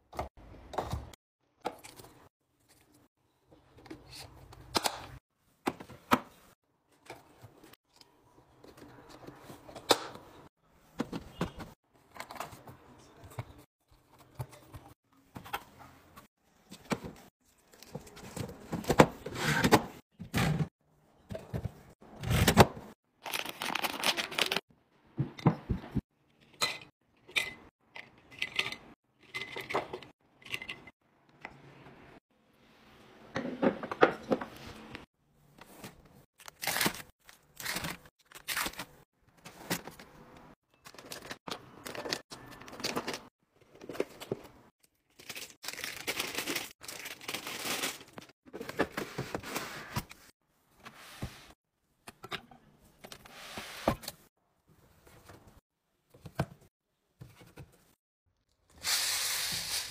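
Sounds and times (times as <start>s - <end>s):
packaging rustling: 45.1s - 48.3s.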